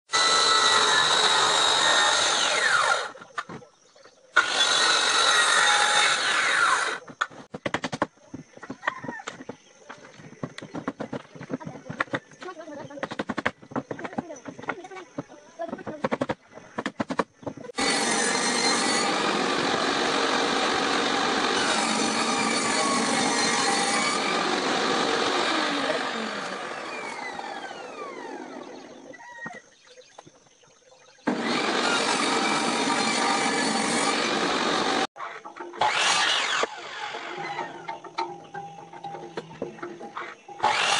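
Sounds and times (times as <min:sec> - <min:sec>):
power tool cutting wood: 0:00.1 - 0:03.2, 0:04.4 - 0:07.2, 0:17.8 - 0:29.1, 0:31.3 - 0:35.2, 0:35.8 - 0:38.0, 0:40.6 - 0:40.9.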